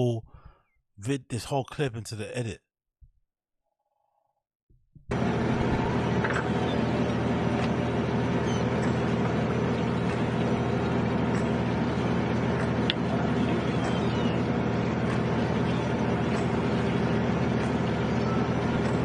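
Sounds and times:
boat engine droning: 0:05.1 - 0:19.0.

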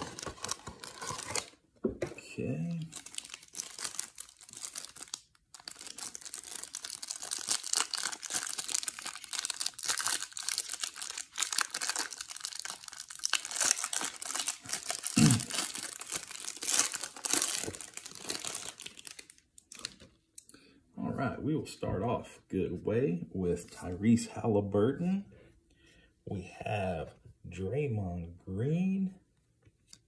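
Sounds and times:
plastic wrapper crinkling: 0:00.0 - 0:01.6, 0:02.4 - 0:20.2.

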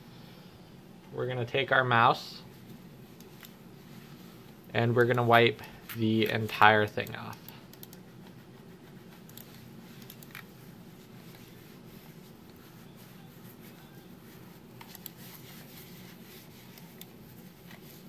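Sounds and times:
wipe rubbing plastic mouse: 0:08.0 - 0:18.0.

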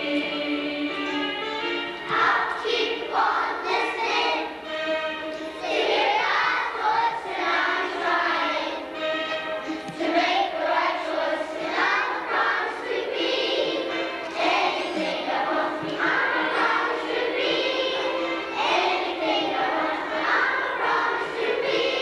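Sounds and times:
children's choir singing: 0:00.0 - 0:22.0.

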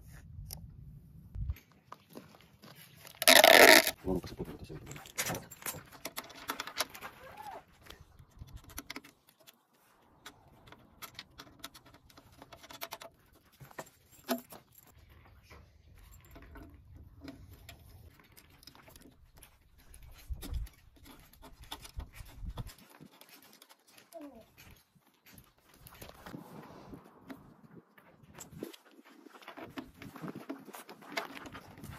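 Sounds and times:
rubber leads rustling: 0:02.0 - 0:04.1.

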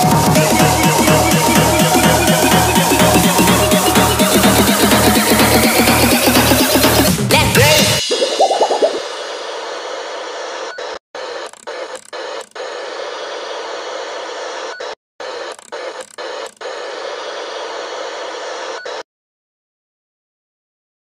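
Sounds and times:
static hiss: 0:12.3 - 0:14.8, 0:16.2 - 0:19.0.

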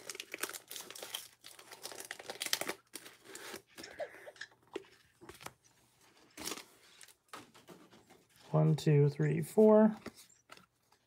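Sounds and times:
foil wrapper crinkling: 0:00.0 - 0:03.7
cards being handled: 0:09.5 - 0:11.0.

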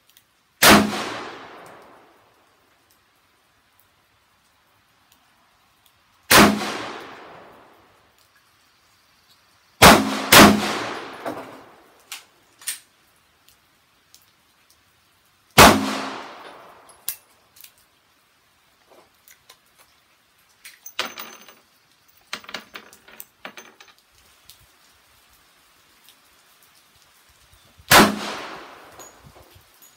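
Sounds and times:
pistol shots with ringing tail: 0:00.6 - 0:01.7, 0:06.3 - 0:07.4, 0:09.8 - 0:11.7, 0:15.6 - 0:16.9, 0:27.9 - 0:29.2.

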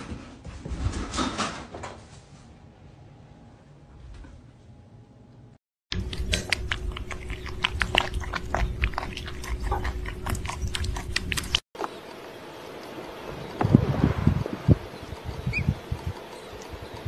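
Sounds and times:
steady hum: 0:02.8 - 0:17.0.

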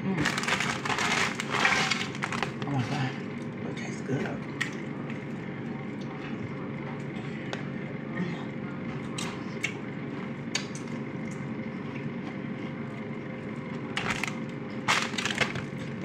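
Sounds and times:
steady low hum: 0:00.0 - 0:16.0
chips scooping through dip: 0:00.2 - 0:02.6.

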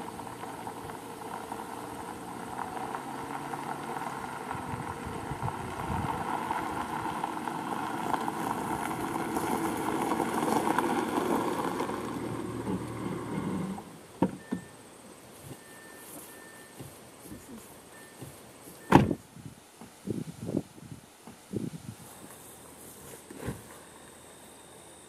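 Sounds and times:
car engine running: 0:00.0 - 0:18.8
tyres rolling on gravel: 0:00.0 - 0:19.2.

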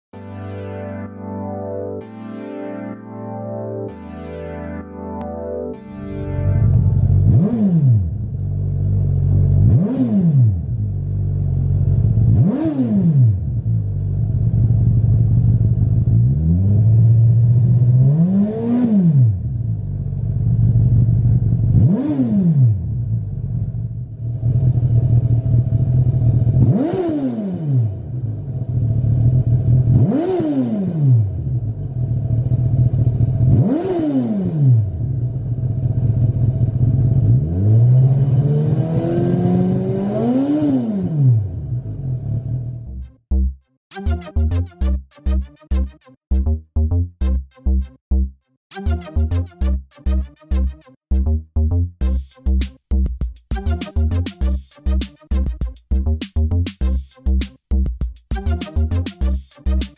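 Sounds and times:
motorcycle engine idling and revving: 0:06.7 - 0:43.6.

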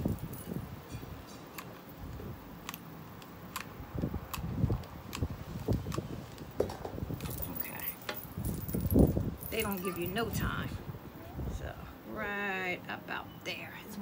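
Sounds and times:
glue gun clicks and taps: 0:02.6 - 0:06.0.

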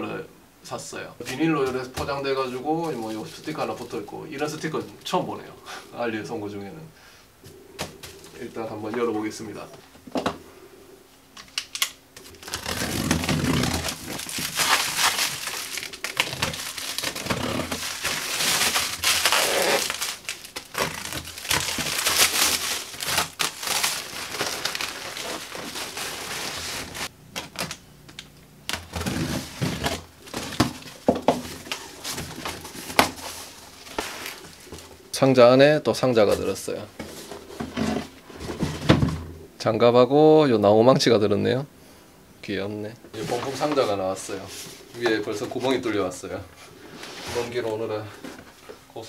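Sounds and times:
cardboard flaps rustling: 0:12.2 - 0:27.8, 0:28.7 - 0:35.0, 0:43.2 - 0:46.1
plastic wrap crinkling: 0:12.2 - 0:34.9.

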